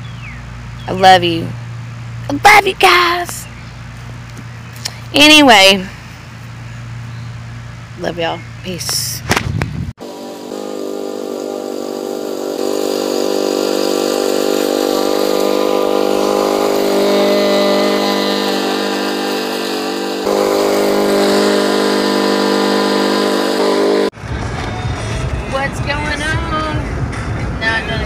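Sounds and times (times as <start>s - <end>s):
lawn mower engine running: 10.0s - 24.9s.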